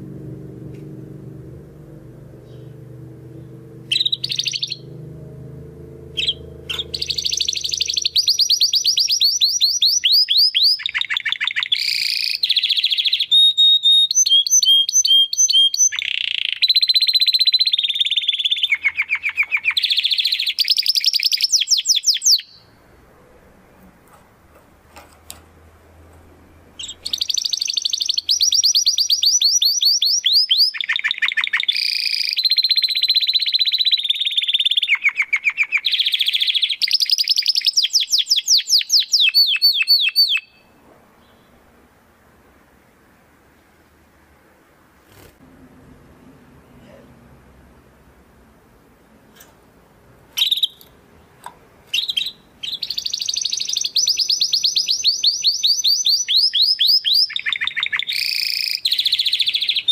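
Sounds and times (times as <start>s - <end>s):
canary singing trills: 3.4s - 22.8s, 26.5s - 41.8s, 50.3s - 51.0s, 51.8s - 59.9s.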